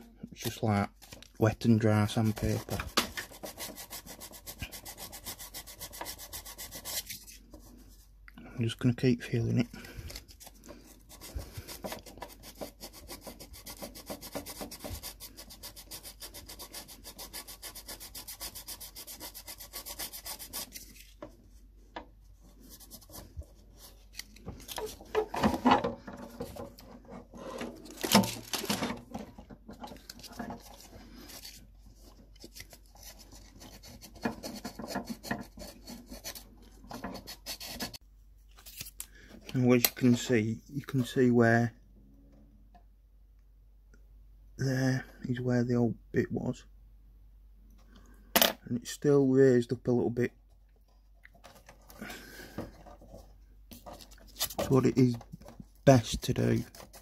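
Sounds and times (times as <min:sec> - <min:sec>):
sandpaper rubbing on plastic: 0:02.1 - 0:07.3, 0:11.0 - 0:21.1, 0:32.5 - 0:38.0, 0:55.9 - 0:57.0.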